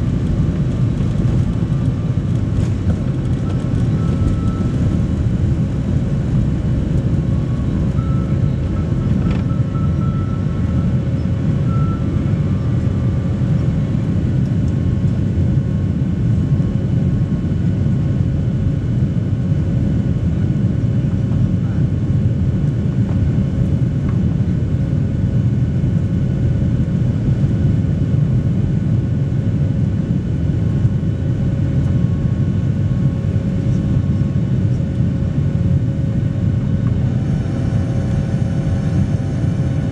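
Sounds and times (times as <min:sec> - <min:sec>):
faint engine whining tones: 0:00.0 - 0:27.8, 0:28.4 - 0:39.9
jet engine rumble: 0:00.0 - 0:39.9.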